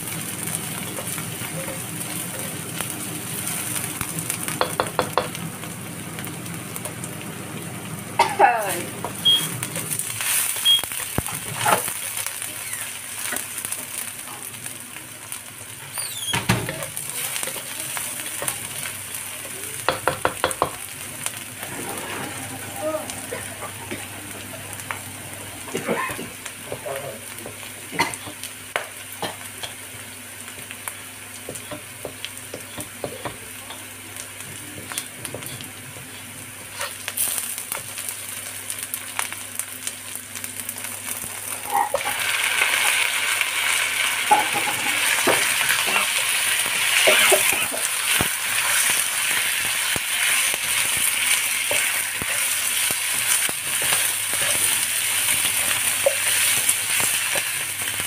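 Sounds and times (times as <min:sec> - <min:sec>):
food sizzling in oil: 0:00.0 - 0:58.0
wooden spatula scraping a pan: 0:21.6 - 0:23.5.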